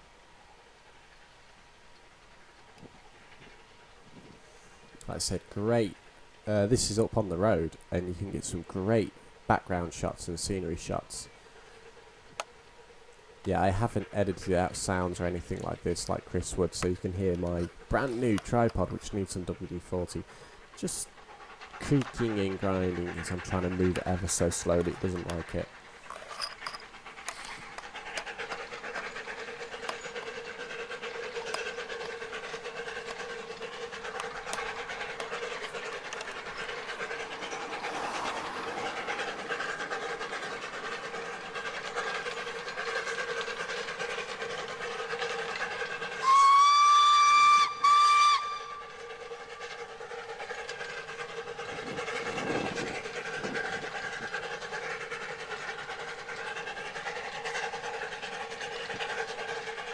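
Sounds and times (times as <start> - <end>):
steam locomotive running: 5.2 - 59.9
steam whistle blasts: 46.2 - 48.9.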